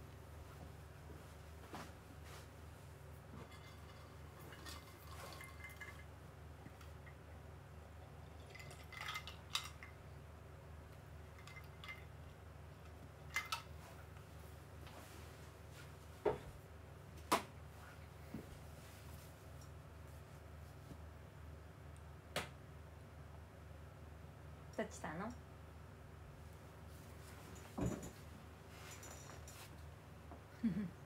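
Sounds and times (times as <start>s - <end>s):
clinks of hard objects handled: 3.4s - 6.1s, 8.2s - 10.0s, 11.3s - 13.8s, 27.6s - 29.7s.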